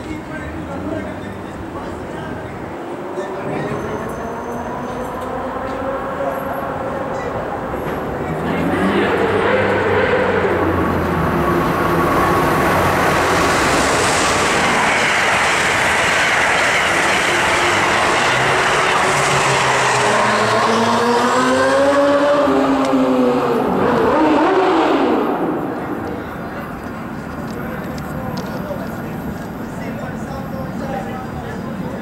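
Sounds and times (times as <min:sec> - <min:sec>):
train wheels rushing on rail: 0:00.0 - 0:21.0
train whine: 0:00.1 - 0:32.0.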